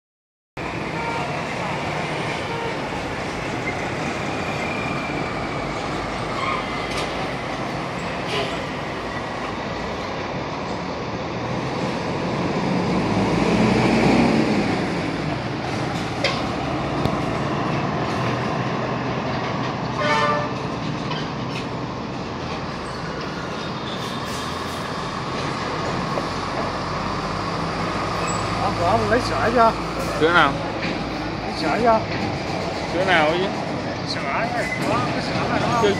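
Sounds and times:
truck diesel engines rumbling: 0.6s - 35.9s.

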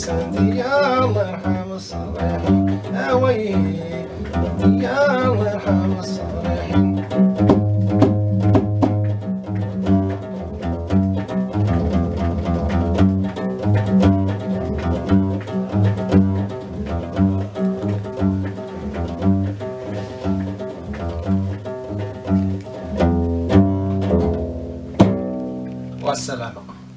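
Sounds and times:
person singing: 0.0s - 7.3s
bass lute riff: 0.0s - 26.9s.

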